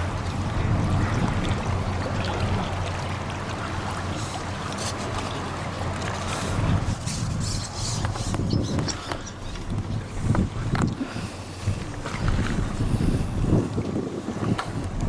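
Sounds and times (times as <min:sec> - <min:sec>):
small waves lapping: 0:00.0 - 0:15.0
steady wind: 0:00.0 - 0:15.0.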